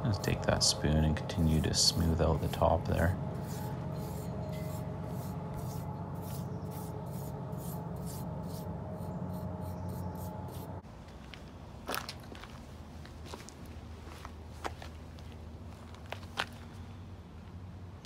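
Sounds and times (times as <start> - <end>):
steady low hum: 0.0 - 11.8
metal spoon scraping wet concrete: 0.1 - 10.6.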